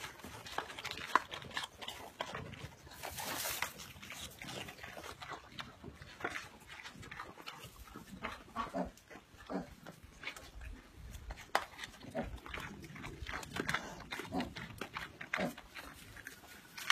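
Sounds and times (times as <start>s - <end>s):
pig grunting: 0.0s - 10.3s, 11.9s - 16.9s
animals munching vegetables: 0.0s - 16.9s.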